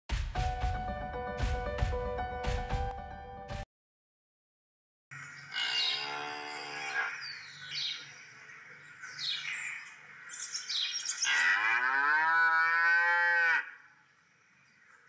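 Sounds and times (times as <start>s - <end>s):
bird chirps: 5.1s - 11.3s
cow mooing: 5.6s - 7.2s, 11.2s - 13.8s.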